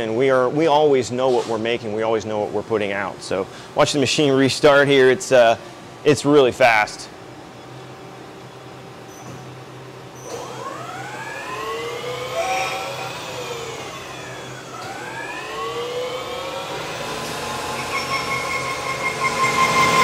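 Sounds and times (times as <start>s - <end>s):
lathe spindle whine: 10.3s - 20.0s.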